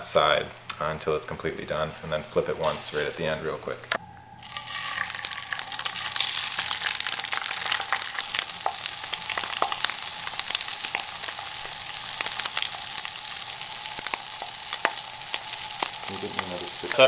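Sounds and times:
fish sizzling in butter: 0:04.4 - 0:17.0.

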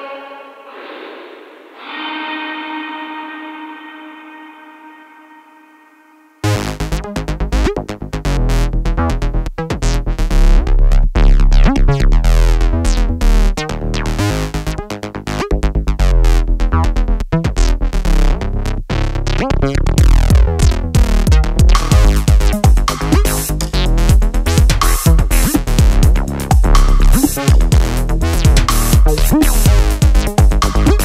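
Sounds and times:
electronic music with drum machine: 0:19.3 - 0:31.0.

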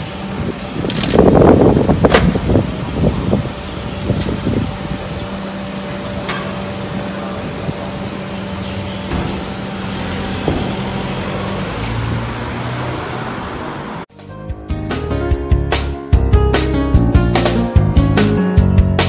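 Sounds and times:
vehicle engine humming: 0:00.0 - 0:14.1.

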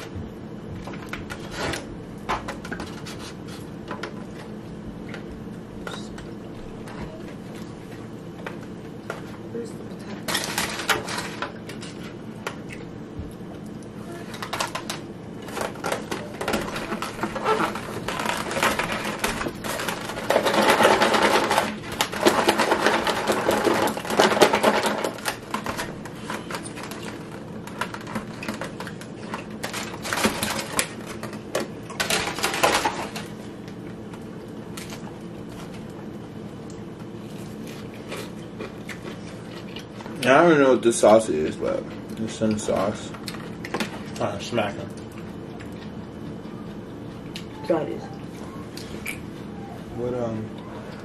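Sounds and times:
plastic container crackling and rattling: 0:14.3 - 0:33.3.

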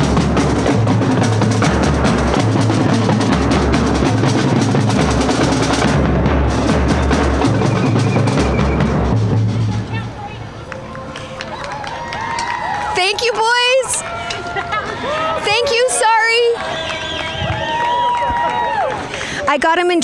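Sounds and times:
snare drum rolls: 0:00.0 - 0:09.9
bass drum beats: 0:00.0 - 0:10.3.

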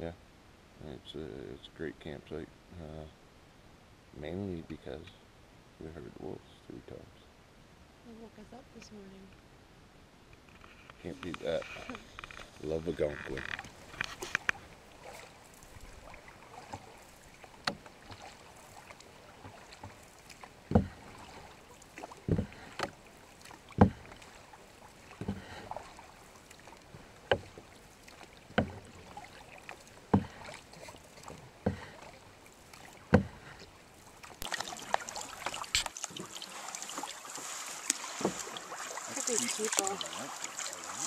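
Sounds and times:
canoe paddle strokes splashing: 0:10.5 - 0:41.0
low hiss of water: 0:10.6 - 0:41.0
rush of wind and water: 0:10.6 - 0:41.0.

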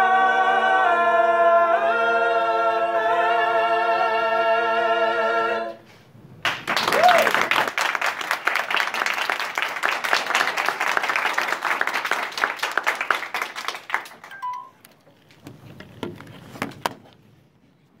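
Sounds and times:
audience clapping: 0:06.4 - 0:14.8.

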